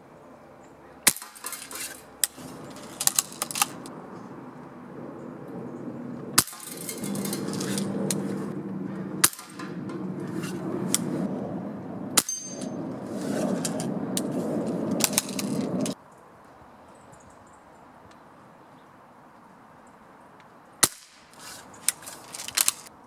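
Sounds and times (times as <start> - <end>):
pellet gun shots: 1.0 - 2.4, 6.4 - 6.8, 9.2 - 9.8, 12.2 - 12.6, 20.8 - 21.3
rustling handling noise: 1.4 - 3.9, 6.6 - 8.5, 21.3 - 22.9
metallic ring of target: 6.4 - 8.0, 9.2 - 10.6, 12.2 - 12.8.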